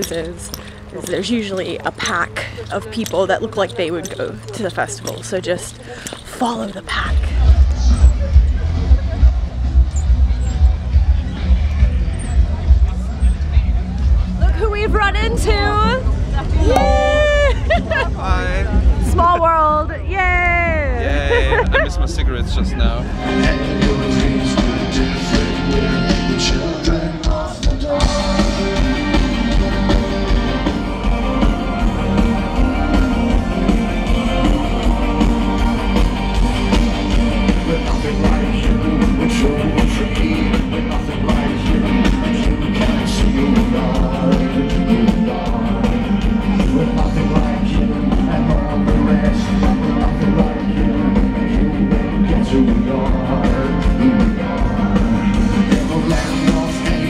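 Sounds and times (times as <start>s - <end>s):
heavy bass: 6.9s - 57.0s
rock band playing live: 23.0s - 57.0s
person singing: 23.2s - 57.0s.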